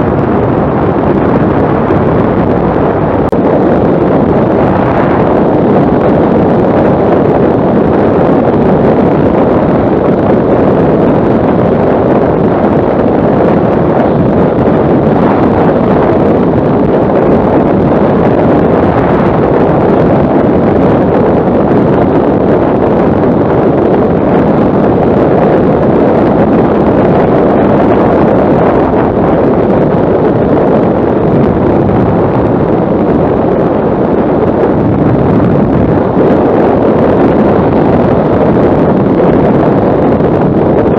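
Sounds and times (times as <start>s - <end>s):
wind rushing over microphone: 0.0s - 40.9s.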